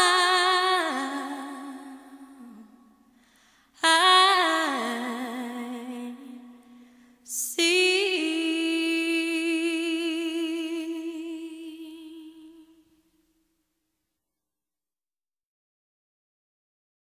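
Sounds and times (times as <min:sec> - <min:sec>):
quick breath: 0:03.1 - 0:03.8.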